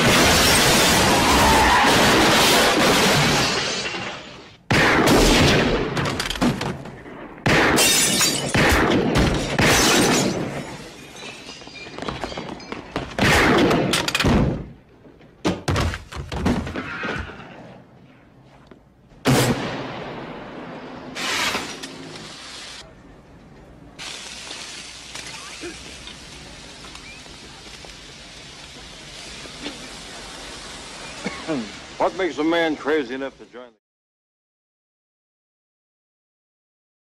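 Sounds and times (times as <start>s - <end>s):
glass shattering: 0.0s - 4.5s, 7.7s - 14.3s.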